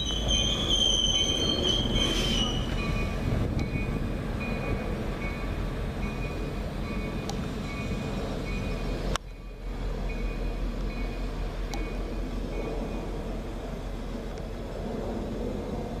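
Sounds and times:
high wheel squeal: 0:00.0 - 0:03.9
train wheels rumbling on rails: 0:00.0 - 0:16.0.

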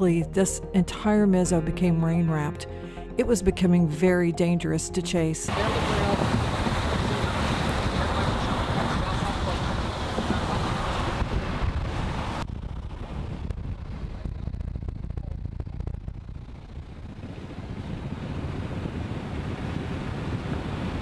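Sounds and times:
moving vehicle rumble: 0:05.5 - 0:21.0
wind rushing over microphone: 0:05.5 - 0:21.0.

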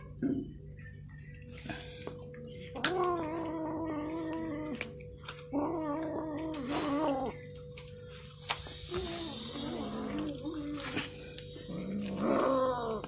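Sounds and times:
kitten chewing bone: 0:01.4 - 0:13.0.

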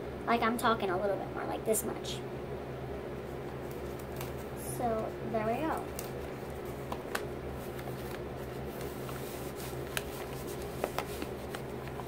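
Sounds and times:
steady low hum: 0:00.0 - 0:12.0
paper rustling and crinkling: 0:05.7 - 0:12.0.

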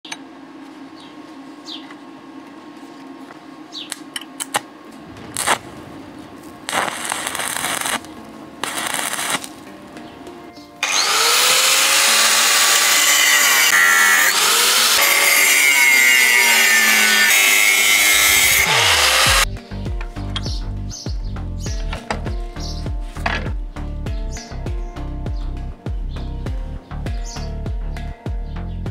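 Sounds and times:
stick welding crackle: 0:03.9 - 0:10.0, 0:10.8 - 0:19.5
angle grinder cutting steel: 0:05.0 - 0:05.7, 0:06.6 - 0:09.6, 0:10.8 - 0:19.5.

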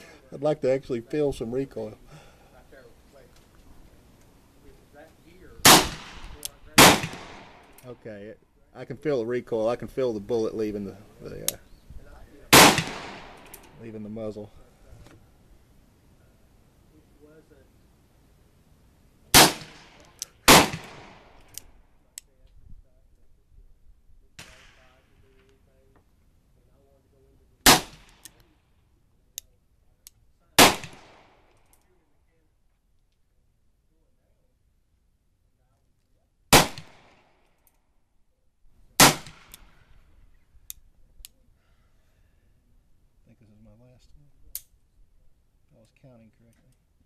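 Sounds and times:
people talking: 0:00.0 - 0:03.4, 0:04.6 - 0:05.6, 0:07.8 - 0:12.6, 0:13.8 - 0:15.2, 0:43.3 - 0:44.3.

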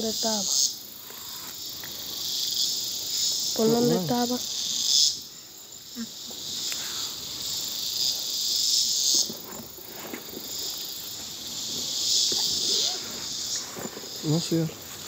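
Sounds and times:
insect chorus buzzing: 0:00.0 - 0:15.0.

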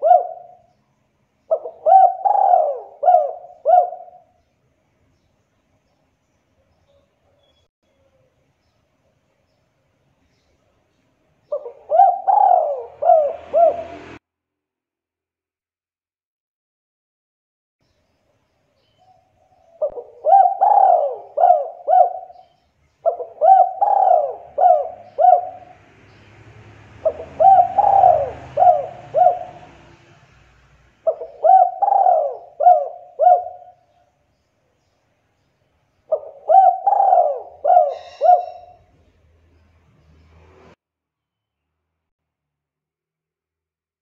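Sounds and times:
dove cooing: 0:00.0 - 0:00.7, 0:01.5 - 0:04.4, 0:11.5 - 0:14.2, 0:19.0 - 0:25.8, 0:27.0 - 0:30.0, 0:31.0 - 0:34.0, 0:36.1 - 0:38.9.

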